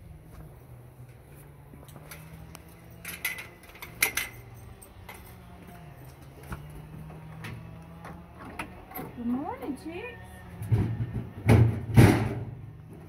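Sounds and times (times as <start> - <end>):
chain-link gate rattling: 2.0 - 5.4
metal gate latch clank: 3.0 - 4.5.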